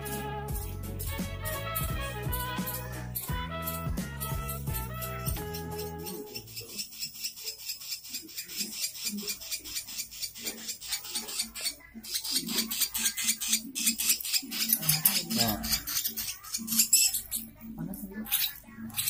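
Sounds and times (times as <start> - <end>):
shaker-like beat: 0.0 - 6.9.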